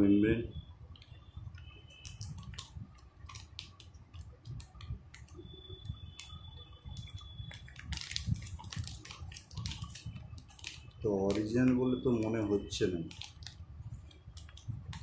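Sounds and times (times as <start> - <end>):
plastic bag crinkling: 1.9 - 15.0
small clicks: 13.1 - 15.0.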